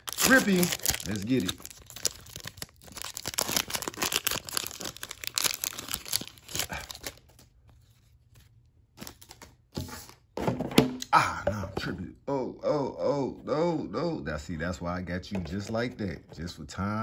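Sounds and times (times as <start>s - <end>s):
foil wrapper tearing and crinkling: 0.0s - 7.4s.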